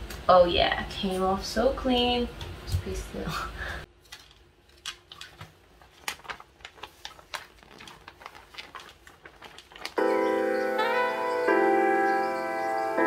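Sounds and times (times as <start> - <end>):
wrapping paper crinkling: 3.9 - 11.0
piano music: 10.0 - 13.0.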